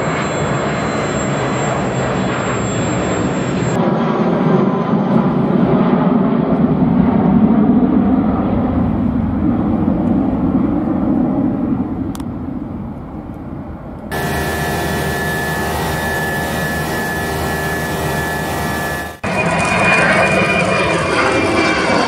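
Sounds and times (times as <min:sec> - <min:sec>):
jet flying past overhead: 0:00.0 - 0:12.9, 0:13.5 - 0:22.0
flight deck hiss: 0:14.1 - 0:19.2
steady whining tones: 0:14.1 - 0:20.5.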